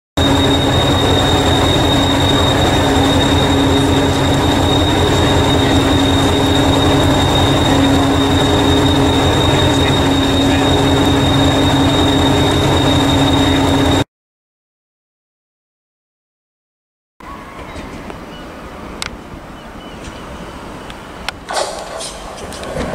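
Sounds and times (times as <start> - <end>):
diesel train engine idling: 0.2 - 14.0
high whine: 0.2 - 14.1.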